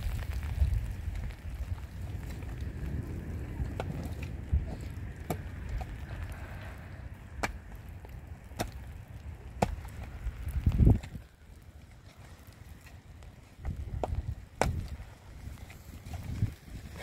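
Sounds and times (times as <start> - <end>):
low rumbling background: 0.0 - 17.0.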